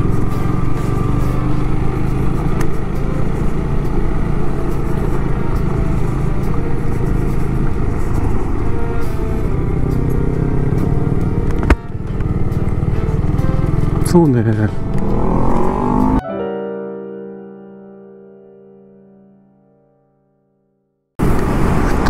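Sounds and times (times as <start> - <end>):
motorcycle engine running: 0.0 - 16.2
wind and road noise: 0.0 - 16.2, 21.2 - 22.0.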